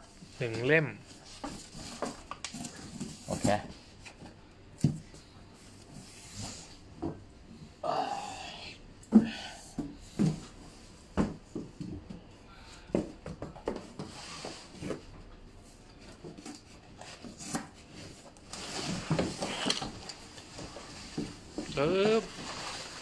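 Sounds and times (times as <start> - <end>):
cardboard scraping and rubbing: 20.7 - 23.0.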